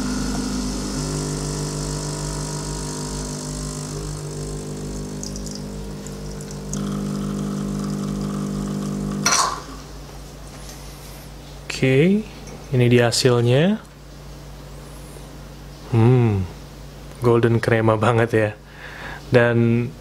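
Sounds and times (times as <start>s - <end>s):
espresso machine pump buzzing: 0.0s - 9.8s.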